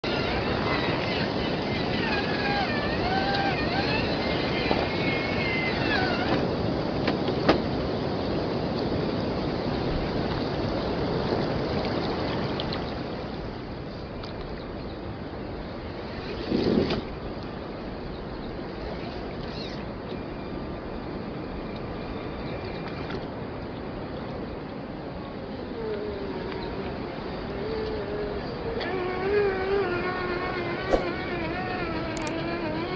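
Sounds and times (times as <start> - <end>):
sharp click: 30.9 - 31.2
short low thump: 30.9 - 31.3.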